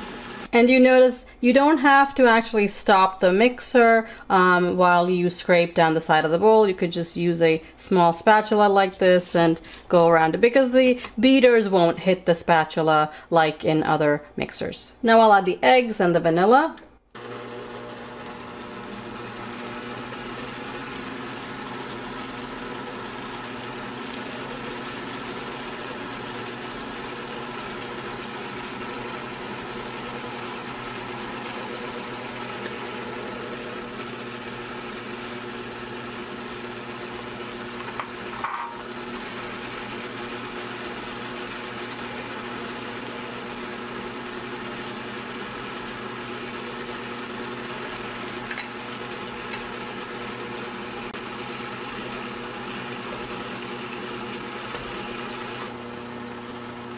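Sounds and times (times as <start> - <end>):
stand mixer motor humming: 0.0 - 0.5, 17.2 - 56.9.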